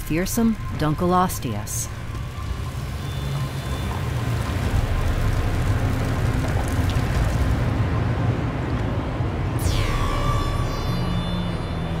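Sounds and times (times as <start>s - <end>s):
low rumble drone: 9.6s - 12.0s.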